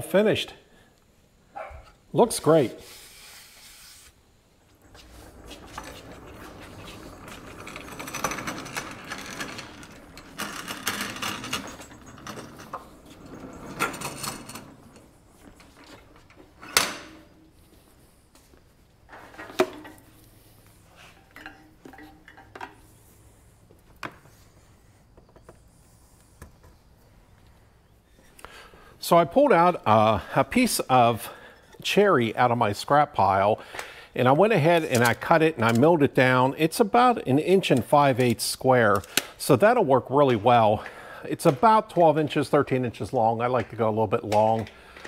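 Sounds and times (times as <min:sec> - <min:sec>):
wood lathe scraping and clattering: 0:04.7 - 0:17.0.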